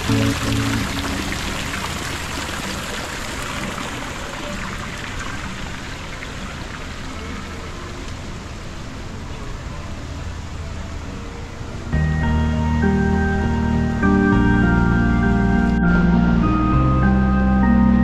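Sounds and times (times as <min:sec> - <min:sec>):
background music: 0:00.0 - 0:01.6, 0:11.9 - 0:18.0
splashing rushing water: 0:00.0 - 0:09.3.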